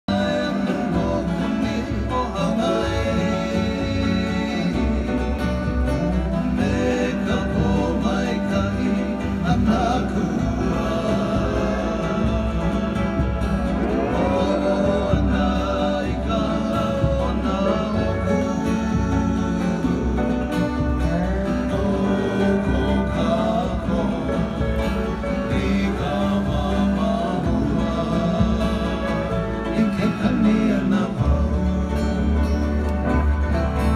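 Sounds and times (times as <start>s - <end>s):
person singing: 0.1s - 33.9s
plucked guitar: 0.1s - 33.9s
steady bass: 0.1s - 33.9s.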